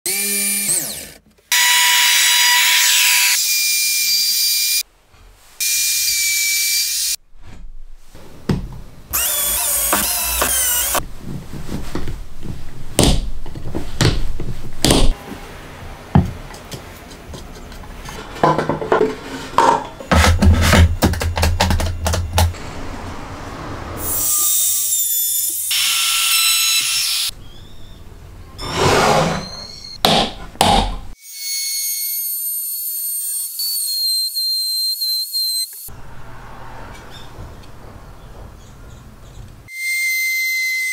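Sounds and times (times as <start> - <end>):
power drill boring into wood: 0.1 - 4.8, 9.1 - 11.0, 24.6 - 27.3
wood and clamps knocking: 16.2 - 22.6.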